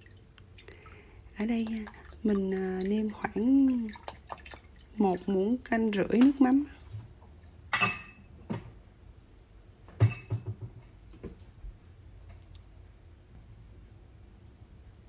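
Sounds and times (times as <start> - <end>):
kitchen items knocking and clinking: 10.0 - 10.9.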